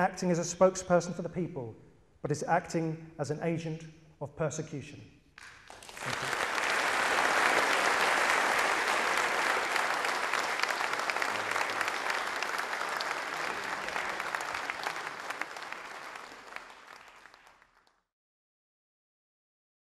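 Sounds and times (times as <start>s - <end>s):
audience applauding: 5.4s - 18.0s.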